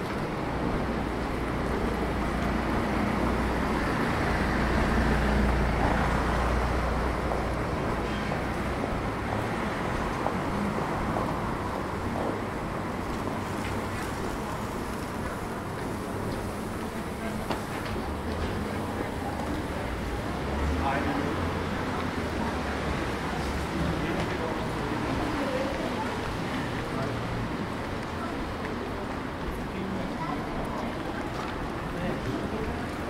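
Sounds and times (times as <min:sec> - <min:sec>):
road noise: 0:00.0 - 0:33.0.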